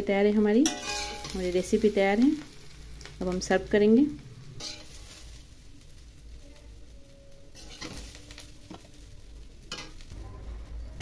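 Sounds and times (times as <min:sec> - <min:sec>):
faint sizzle: 0:00.0 - 0:11.0
steel spatula scraping a pan: 0:00.6 - 0:02.6, 0:04.6 - 0:05.5, 0:07.5 - 0:09.0.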